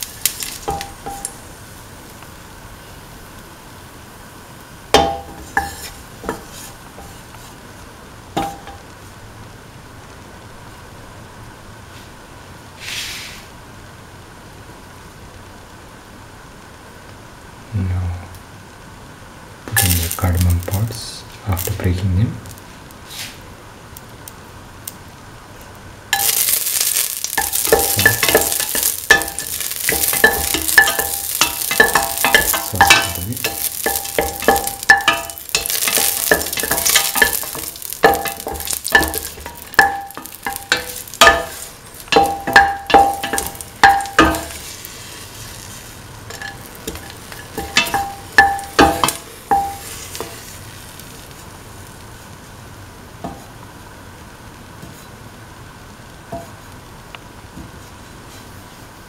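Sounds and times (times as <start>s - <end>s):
spices sizzling in hot oil: 0.0s - 59.0s
spatula scraping metal pan: 5.3s - 7.4s.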